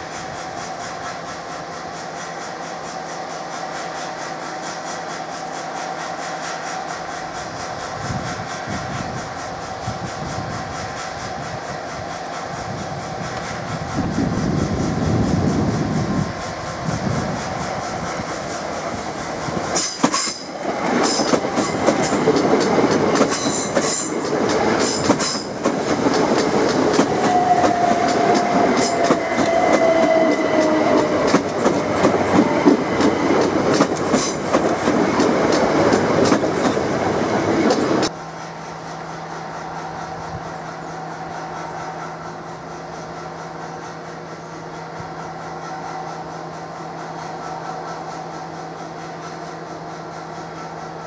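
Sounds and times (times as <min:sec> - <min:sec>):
approaching train hum: 0:00.0 - 0:51.0
electric train passing: 0:00.0 - 0:51.0
train wheels clicking over rails: 0:00.0 - 0:51.0
train whine falling in pitch: 0:12.6 - 0:51.0.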